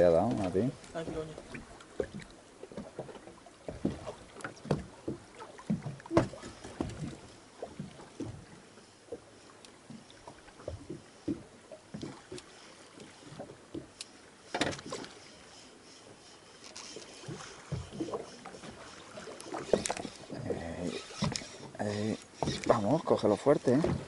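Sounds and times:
water slapping hull: 0.0 - 24.0
knocks on boat: 2.0 - 8.5, 14.5 - 15.0, 23.7 - 24.0.

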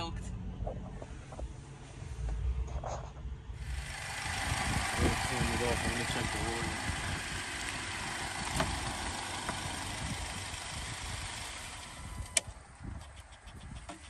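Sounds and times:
car engine idling: 3.6 - 14.0.

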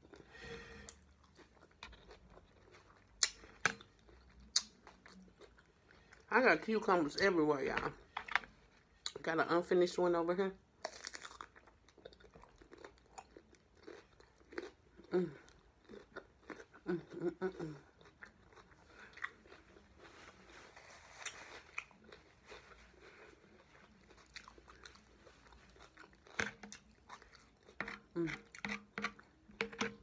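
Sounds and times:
chewing crunchy cucumber: 0.0 - 6.3, 10.8 - 30.0.

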